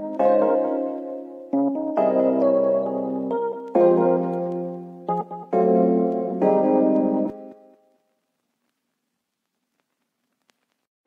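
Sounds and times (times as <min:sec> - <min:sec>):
piano-like keyboard music: 0:00.0 - 0:08.0.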